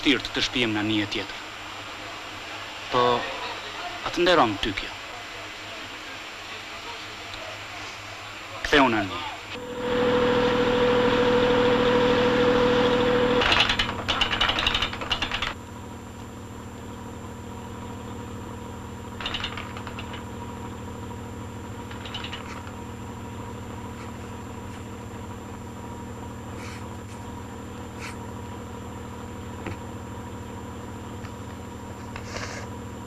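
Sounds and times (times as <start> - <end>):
steady held tone: 9.5 - 13.4
boat engine running: 9.6 - 33.0
rapid rattling clicks: 13.4 - 15.6, 19.2 - 20.3, 21.8 - 22.8.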